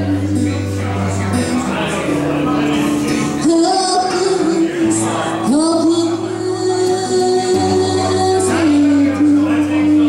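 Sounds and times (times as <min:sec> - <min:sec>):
woman singing: 0:00.0 - 0:00.8, 0:03.4 - 0:10.0
acoustic guitar: 0:00.0 - 0:10.0.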